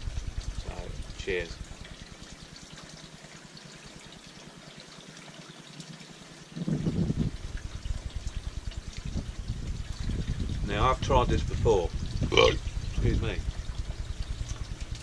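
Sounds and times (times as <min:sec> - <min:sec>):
man gulping beer: 0:12.2 - 0:12.6.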